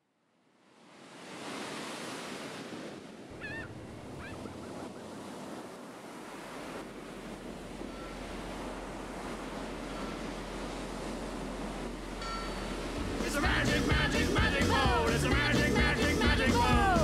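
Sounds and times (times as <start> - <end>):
ocean surf washing: 0.6 - 17.0
short wavering bird calls: 3.4 - 5.3.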